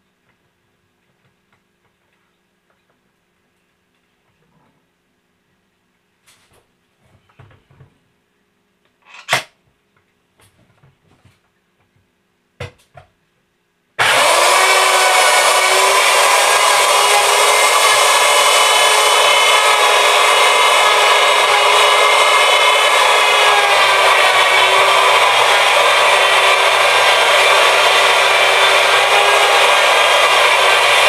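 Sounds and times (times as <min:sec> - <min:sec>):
router cutting wood: 0:14.0 - 0:31.0.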